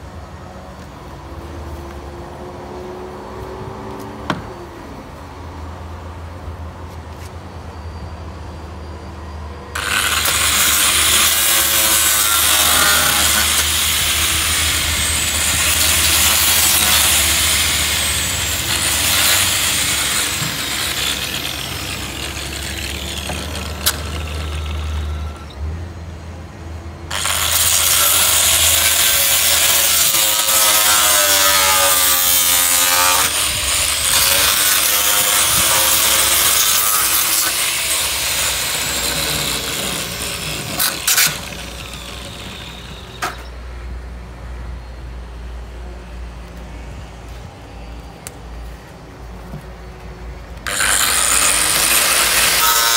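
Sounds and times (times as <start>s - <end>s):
electric power sander running: 9.8s - 25.2s.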